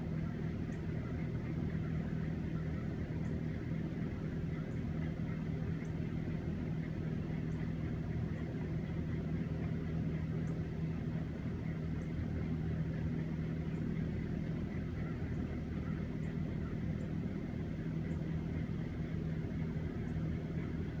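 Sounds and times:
exhaust fans droning: 0.0 - 21.0.

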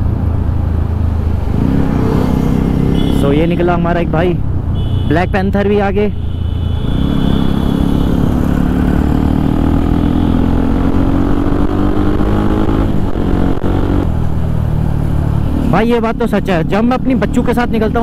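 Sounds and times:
motorcycle engine accelerating: 1.1 - 4.2, 6.8 - 18.0.

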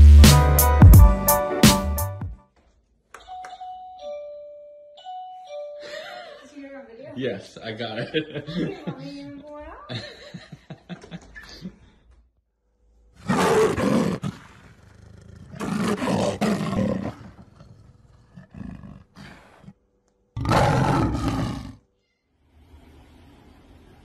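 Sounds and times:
rough animal roars: 13.2 - 19.8, 20.4 - 21.9.

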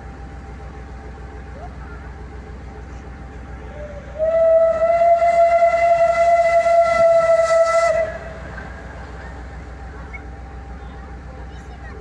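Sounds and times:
steam locomotive whistle: 3.7 - 8.6.

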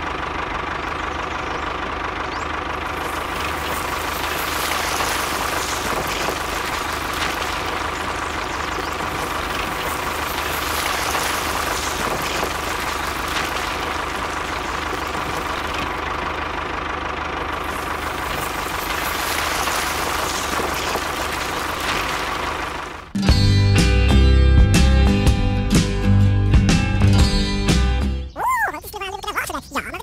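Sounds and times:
blade pushing soil: 2.7 - 23.2.

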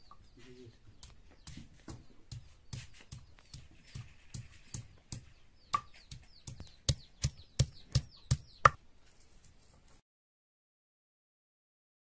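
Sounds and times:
small bird chirping: 0.0 - 8.8.

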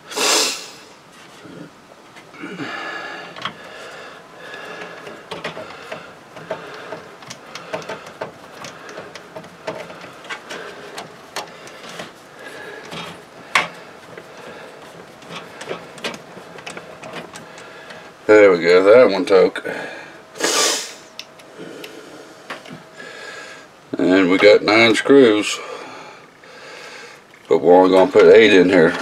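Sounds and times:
person sniffing: 0.0 - 1.7, 20.4 - 22.4
metal screw clicking and scraping: 12.8 - 18.0.

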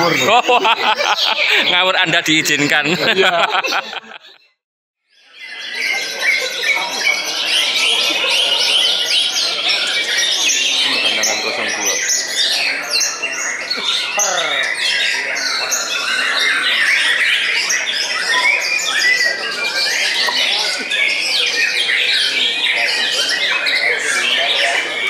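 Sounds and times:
songbirds chirping and trilling: 0.0 - 4.4, 5.1 - 25.0
falling bird whistle: 18.2 - 19.4.

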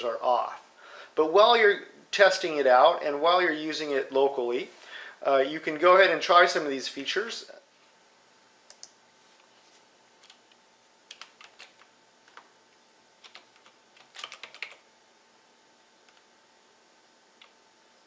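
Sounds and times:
clicks: 8.7 - 9.0
keyboard typing: 11.1 - 12.5, 13.2 - 14.8.

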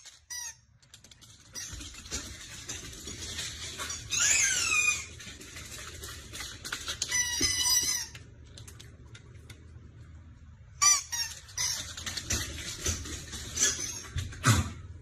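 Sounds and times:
dog squealing: 3.9 - 5.1.

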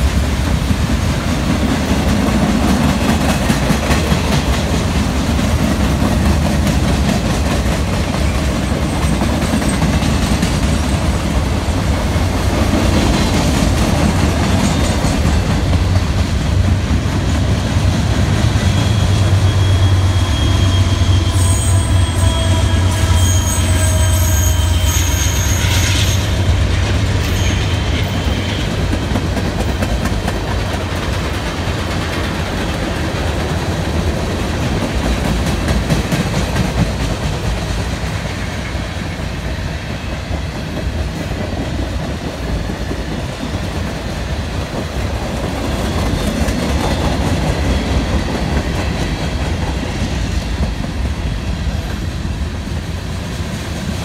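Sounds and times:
train wheels rumbling and clacking: 0.0 - 54.0
high metal wheel squeal: 18.5 - 26.6, 27.2 - 28.7.

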